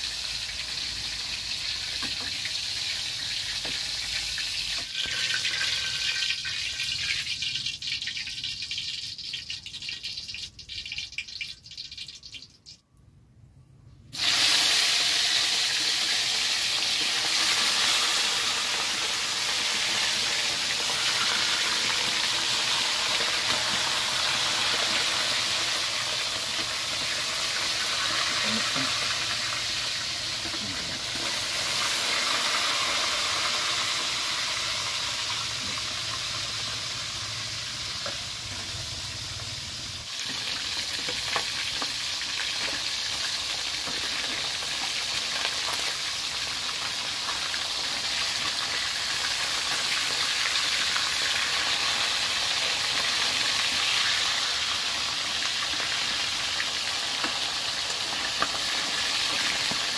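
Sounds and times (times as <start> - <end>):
fish sizzling in hot oil: 0.0 - 12.8, 14.1 - 59.9.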